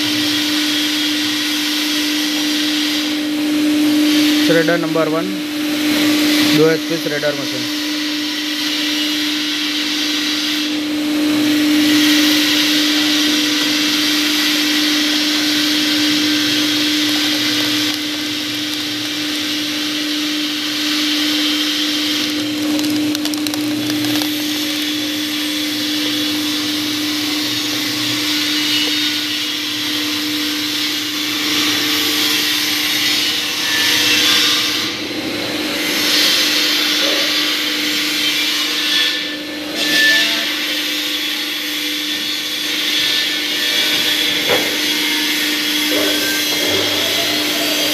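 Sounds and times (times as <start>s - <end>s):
electric motor humming: 10.6s - 32.1s
cutter discs whirring: 11.3s - 29.0s
cardboard being torn by cutters: 15.8s - 20.0s, 22.0s - 24.9s.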